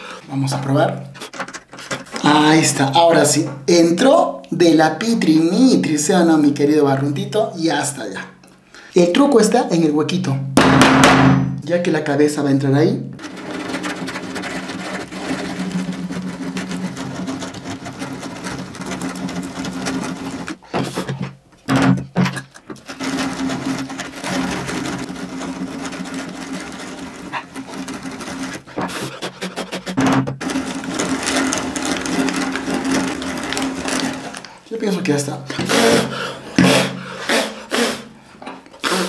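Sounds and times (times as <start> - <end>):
drill bit scraping wood: 13.2 - 38.0.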